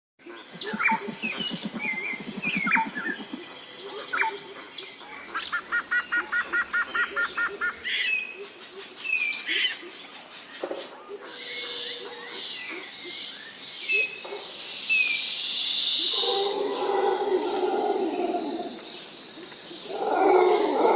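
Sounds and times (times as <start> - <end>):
birds chirping and whistling: 0.4 - 8.4, 11.4 - 18.9.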